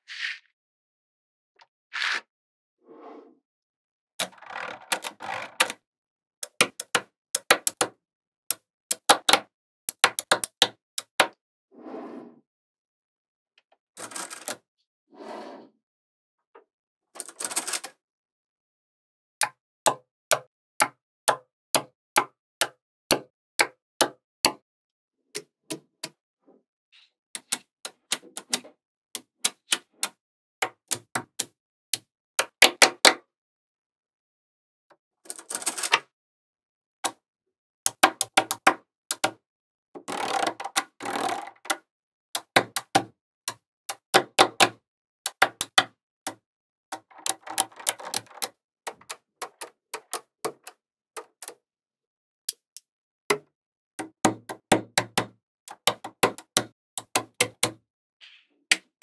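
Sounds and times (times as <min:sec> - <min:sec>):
magnetic balls clicking: 0:46.9 - 0:50.7.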